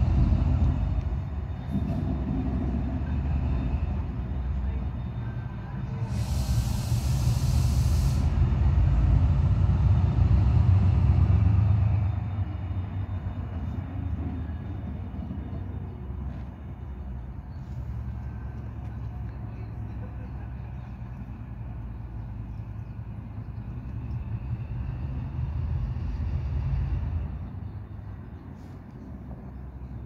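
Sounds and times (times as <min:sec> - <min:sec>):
diesel locomotive engine rumble: 0:00.0 - 0:30.0
compressed air hiss: 0:06.0 - 0:08.5.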